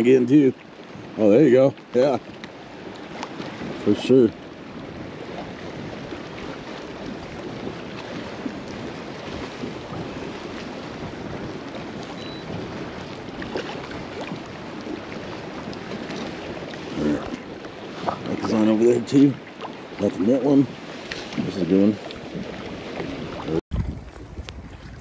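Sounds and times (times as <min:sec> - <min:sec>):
waves lapping against kayak: 0:00.0 - 0:25.0
wind noise on microphone: 0:00.8 - 0:25.0.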